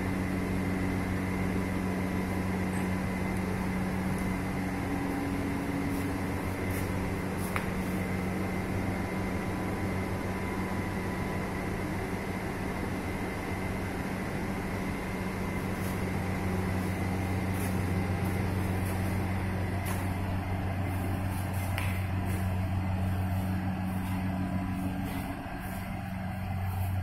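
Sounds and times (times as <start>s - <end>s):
quilting machine humming: 0.0s - 27.0s.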